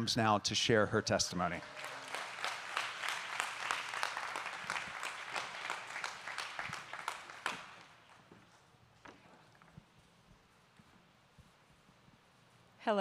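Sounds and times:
congregation applauding: 0.8 - 8.3.

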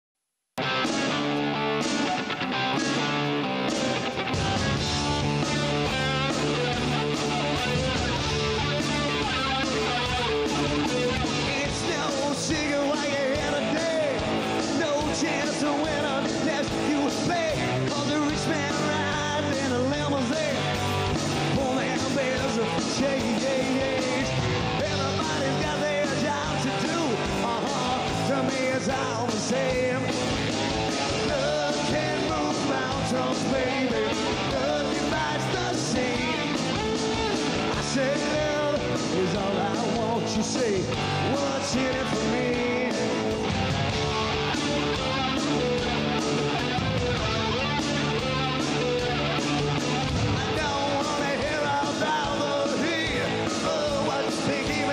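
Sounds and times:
rock band playing live: 0.6 - 54.9
person singing: 10.8 - 30.4, 31.0 - 43.5, 50.2 - 54.9.

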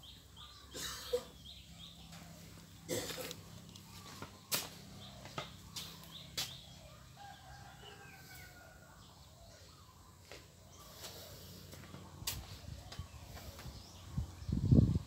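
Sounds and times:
rooster crowing faintly: 6.8 - 9.6.

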